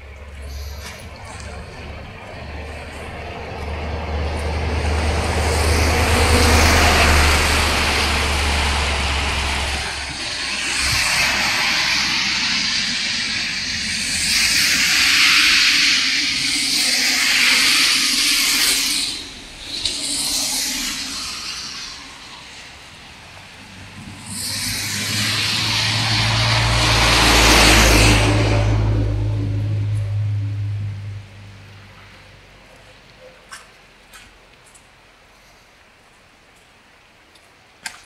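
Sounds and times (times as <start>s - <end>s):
low rumble: 0.0s - 15.2s, 19.2s - 32.4s
water rushing over rocks: 0.0s - 29.5s.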